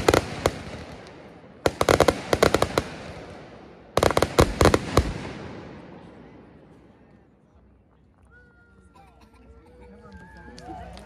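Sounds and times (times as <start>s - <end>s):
fireworks bursting: 0.0s - 6.7s.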